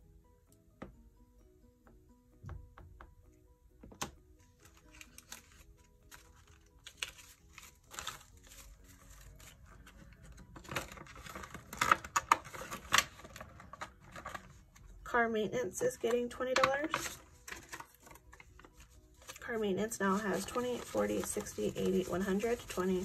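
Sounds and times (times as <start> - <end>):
soft background music: 0.0 - 23.0
banknotes rustling: 4.4 - 15.0, 15.8 - 23.0.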